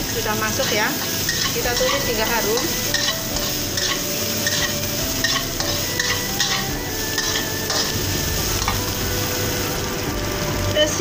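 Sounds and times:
food sizzling in oil: 0.0s - 11.0s
spatula scraping and tapping pan: 0.6s - 8.0s.

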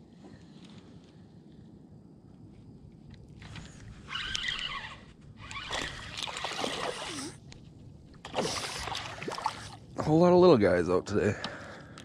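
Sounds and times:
water splashing and sloshing: 3.3s - 10.3s
fishing reel winding: 4.1s - 6.1s.

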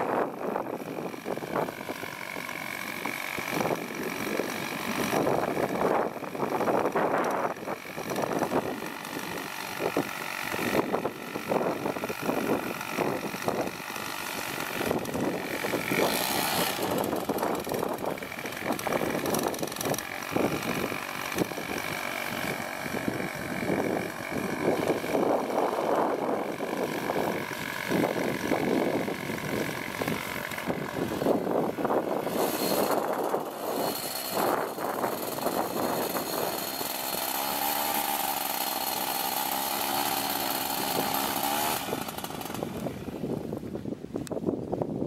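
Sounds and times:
wind buffeting microphone: 0.0s - 37.0s, 40.7s - 45.0s
paramotor engine idling: 0.0s - 43.8s.

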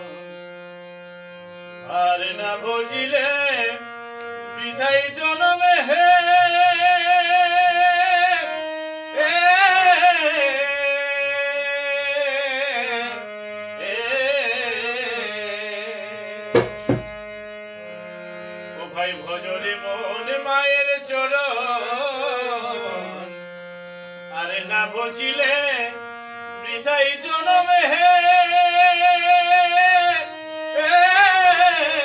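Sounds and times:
harmonium drone: 0.0s - 32.0s
man singing folk song: 1.9s - 3.8s, 4.5s - 8.5s, 13.8s - 16.2s, 18.8s - 23.3s, 24.3s - 26.0s, 26.6s - 32.0s
percussion strikes: 16.5s - 17.4s.

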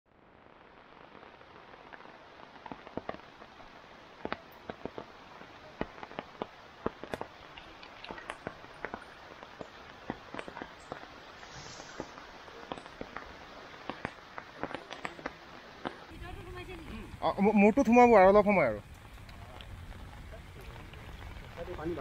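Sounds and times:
rain hissing: 0.1s - 22.0s
raindrops tapping: 0.5s - 22.0s.

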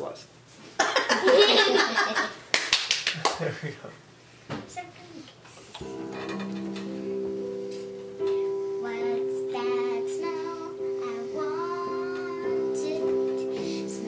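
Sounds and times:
digital piano chords: 5.8s - 14.0s
child singing: 8.4s - 14.0s.

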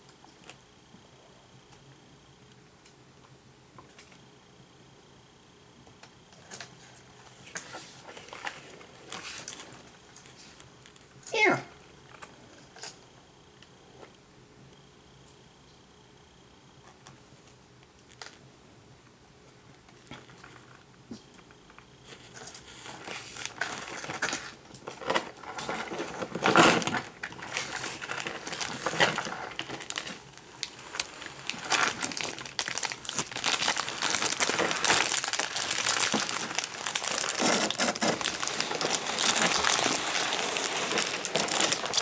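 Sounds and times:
plastic bags and papers crinkling: 6.4s - 11.1s, 21.7s - 42.0s.

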